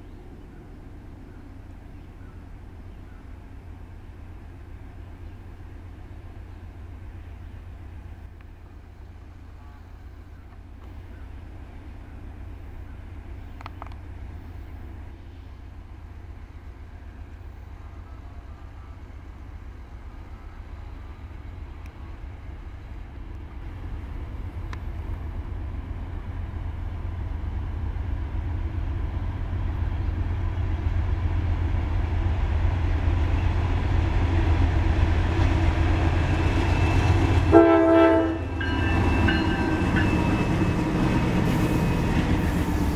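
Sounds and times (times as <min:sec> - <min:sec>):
diesel locomotive rumble: 0:00.0 - 0:42.9
locomotive horn: 0:36.2 - 0:42.9.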